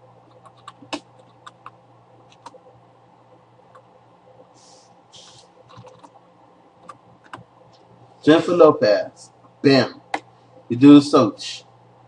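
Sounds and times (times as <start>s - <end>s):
steady low hum: 0.0s - 12.0s
computer keys clicking: 0.3s - 2.6s, 5.7s - 6.2s, 6.8s - 7.5s.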